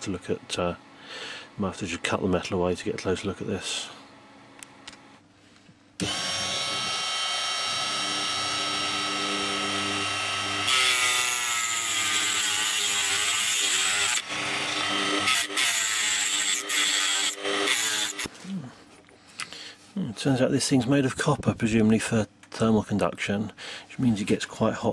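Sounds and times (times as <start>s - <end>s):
rotary tool grinding metal: 6.0s - 18.3s
rotary tool whining: 6.0s - 18.3s.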